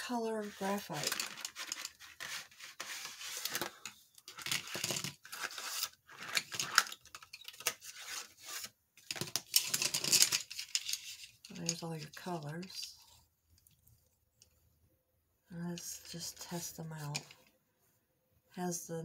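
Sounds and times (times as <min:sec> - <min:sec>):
packaging rustling and tearing: 0:00.4 - 0:11.8.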